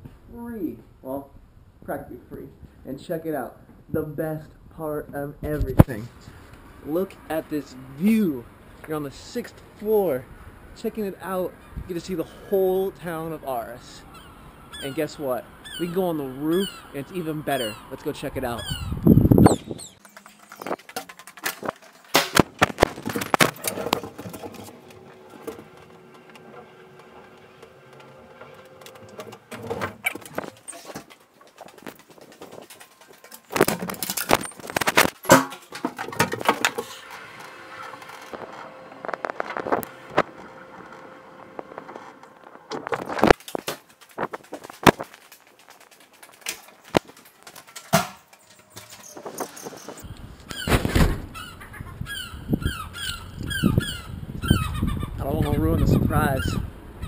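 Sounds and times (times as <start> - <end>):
footsteps: 19.1 - 37.1, 38.0 - 51.1
lift mechanical hum: 23.6 - 30.5, 36.6 - 42.9.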